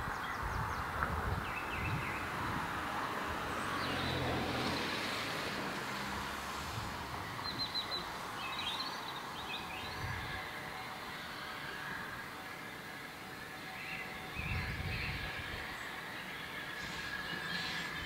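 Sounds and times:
steam locomotive rumble and hiss: 0:00.0 - 0:18.0
small birds chirping: 0:07.4 - 0:10.8.

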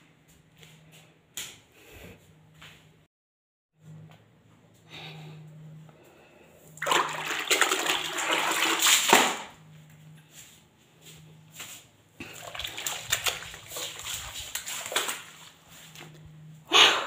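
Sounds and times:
water sloshing in bucket: 0:06.8 - 0:09.6, 0:12.2 - 0:16.2.

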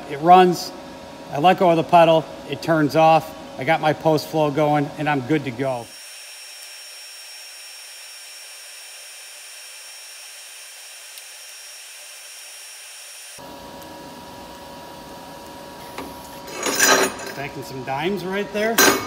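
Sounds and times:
welding arc hissing: 0:05.7 - 0:14.6.

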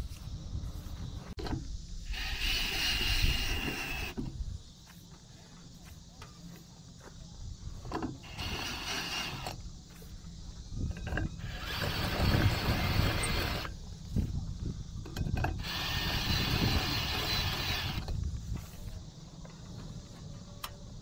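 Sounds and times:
drill grinding into metal: 0:02.1 - 0:04.2, 0:08.2 - 0:09.6, 0:11.4 - 0:13.7, 0:15.6 - 0:18.1.

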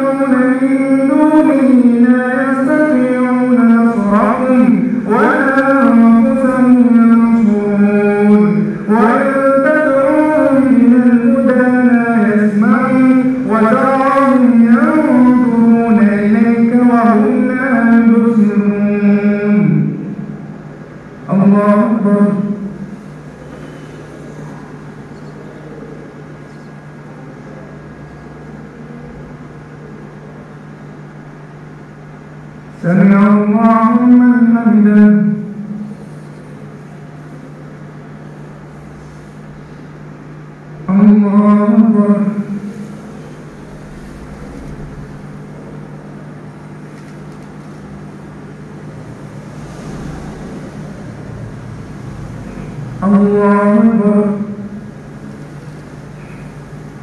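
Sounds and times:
low electrical hum: 0:00.0 - 0:57.0
room noise: 0:00.0 - 0:57.0.

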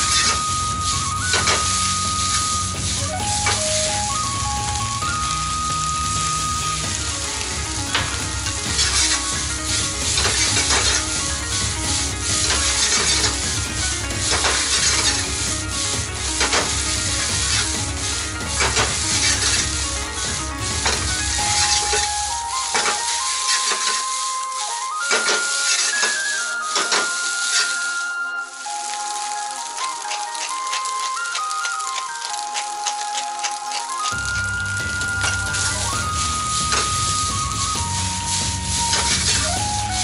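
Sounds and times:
rice sizzling in a wok: 0:00.0 - 0:40.0
wok ladle stirring and scraping: 0:05.2 - 0:27.9.

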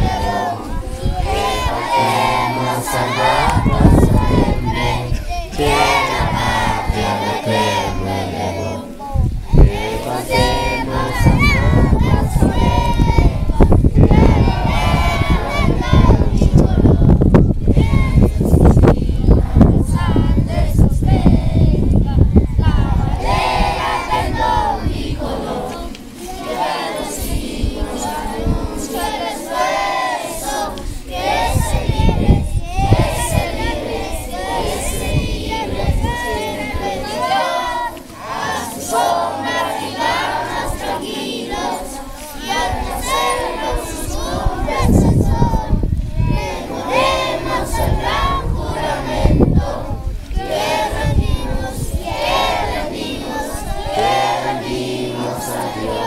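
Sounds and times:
adult voices singing: 0:00.0 - 0:56.0
children singing in unison: 0:00.0 - 0:56.0.

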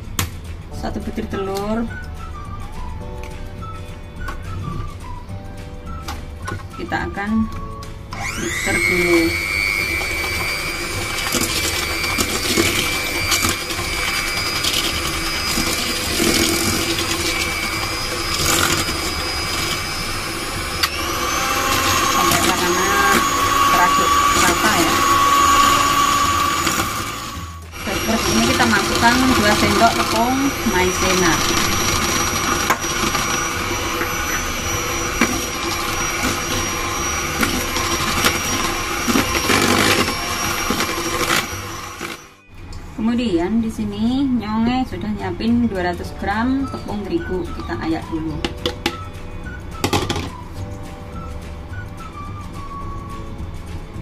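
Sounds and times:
electric hand mixer whine: 0:02.0 - 0:42.5, 0:46.6 - 0:53.3
beaters knocking against metal bowl: 0:49.8 - 0:50.3.

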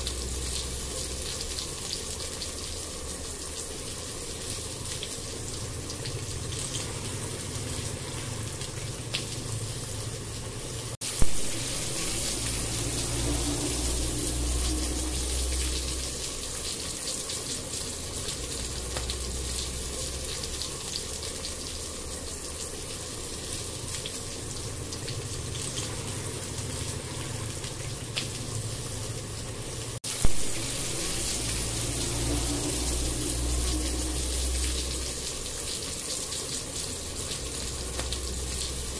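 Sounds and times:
masala sizzling and bubbling: 0:00.0 - 0:38.9.

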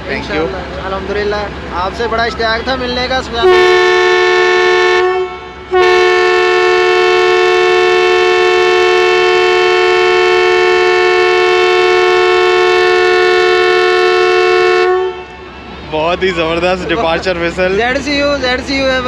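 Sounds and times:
locomotive air horn blast: 0:03.4 - 0:16.0.

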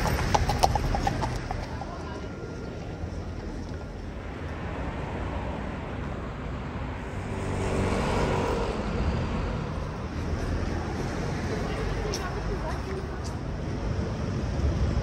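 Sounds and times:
city street traffic: 0:00.0 - 0:15.0
vehicle passing close: 0:07.0 - 0:11.6.

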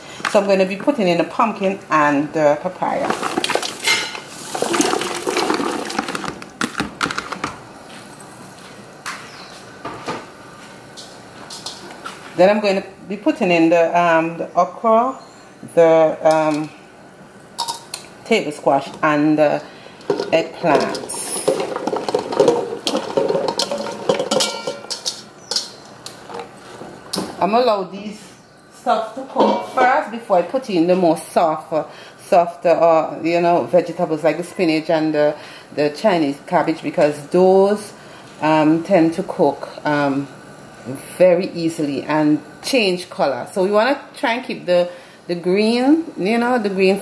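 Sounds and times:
vegetables clattering into metal pot: 0:02.8 - 0:07.5, 0:17.6 - 0:18.0, 0:20.0 - 0:27.4
bowl knocking and scraping pot: 0:20.1 - 0:26.5.

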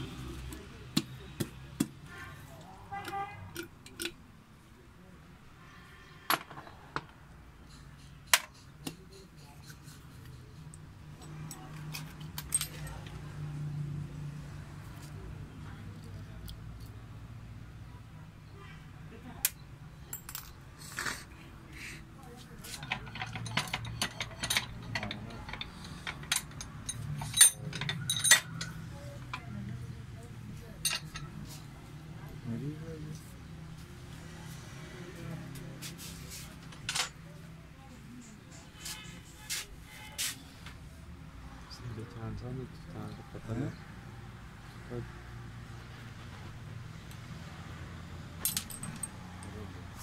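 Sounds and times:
metal parts clinking: 0:11.2 - 0:13.1, 0:22.7 - 0:29.4, 0:30.8 - 0:31.3, 0:48.4 - 0:49.5.

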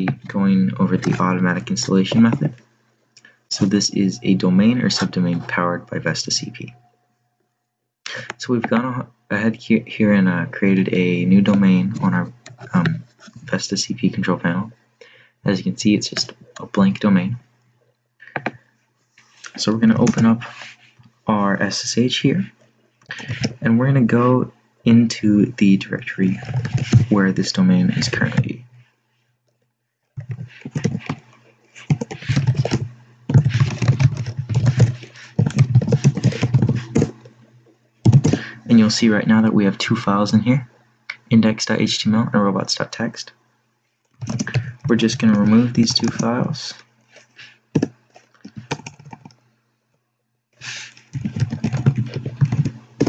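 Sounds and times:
computer keyboard typing: 0:26.3 - 0:27.2, 0:30.2 - 0:31.2, 0:31.8 - 0:37.3, 0:38.1 - 0:38.6, 0:44.2 - 0:46.3, 0:47.8 - 0:49.4, 0:50.9 - 0:53.0.

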